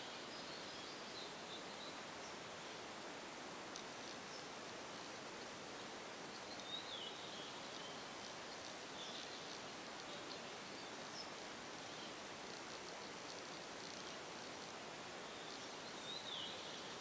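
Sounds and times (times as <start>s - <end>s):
quiet background hiss: 0.0s - 17.0s
faint high-pitched chirps: 3.7s - 17.0s.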